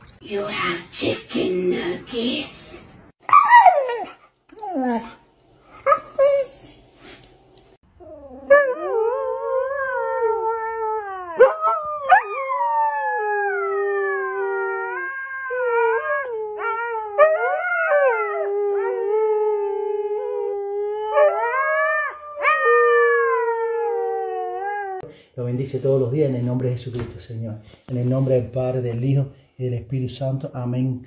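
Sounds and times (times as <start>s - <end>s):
dog howling: 8.0s - 25.0s.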